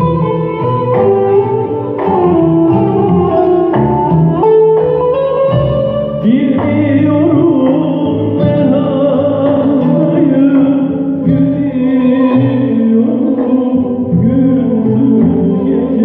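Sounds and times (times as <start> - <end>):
violin playing: 0.0 - 6.4
long-necked lute playing: 0.0 - 16.0
person singing wavering melody: 6.1 - 16.0.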